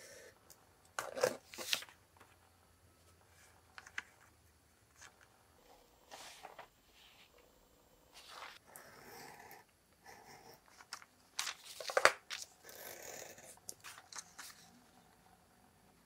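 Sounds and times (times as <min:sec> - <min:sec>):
paper rustling: 0:01.2 - 0:02.3, 0:06.1 - 0:07.4, 0:08.1 - 0:08.6, 0:10.7 - 0:12.6, 0:13.7 - 0:14.8.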